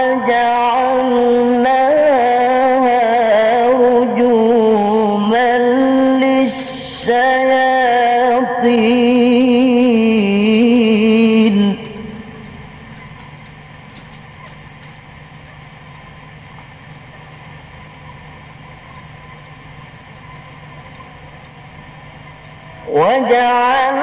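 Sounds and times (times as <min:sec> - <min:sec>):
voice echo: 0:00.0 - 0:12.9, 0:22.6 - 0:24.0
background hum and hiss: 0:00.0 - 0:24.0.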